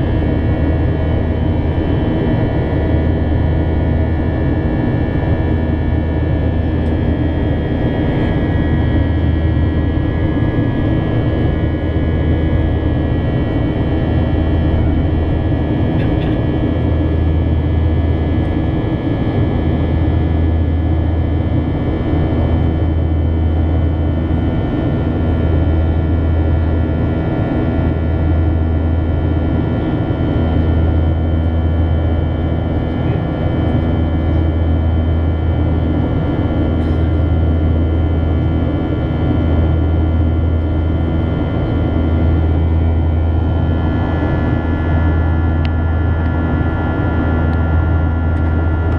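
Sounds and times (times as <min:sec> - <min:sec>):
airplane cabin drone: 0:00.0 - 0:48.9
steady high engine tones: 0:00.0 - 0:48.9.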